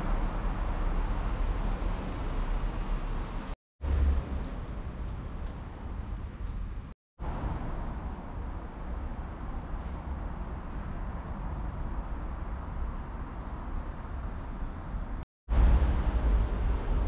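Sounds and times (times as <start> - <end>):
low rumble: 15.5 - 17.0.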